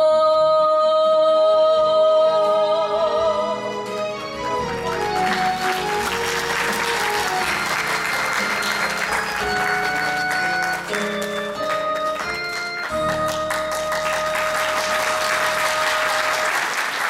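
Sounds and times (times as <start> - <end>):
song backing music: 0.0 - 17.0
audience applauding: 4.1 - 17.0.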